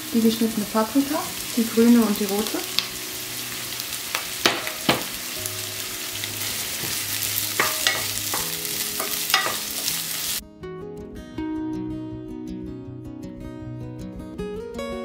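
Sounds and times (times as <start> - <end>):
vegetables sizzling in oil: 0.0 - 10.4
acoustic guitar music: 2.7 - 15.0
wooden spoon knocking pan: 4.1 - 5.4, 6.4 - 9.9.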